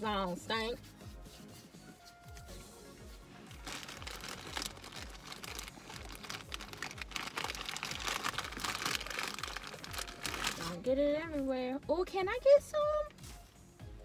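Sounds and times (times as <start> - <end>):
plastic bag crinkling: 3.6 - 10.8.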